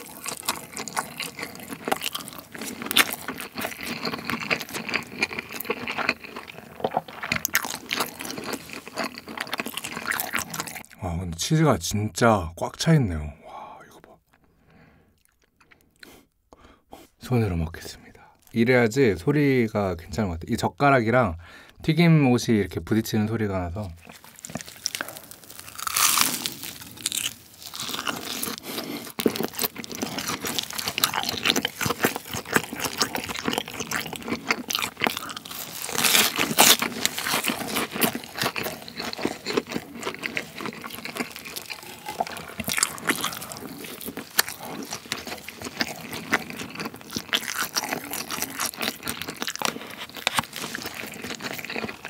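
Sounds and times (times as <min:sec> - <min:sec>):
breadcrumb crust crackling: 0:00.0 - 0:10.9, 0:23.9 - 0:52.0
crunching and chewing: 0:00.0 - 0:11.0, 0:15.1 - 0:16.3, 0:23.8 - 0:52.0.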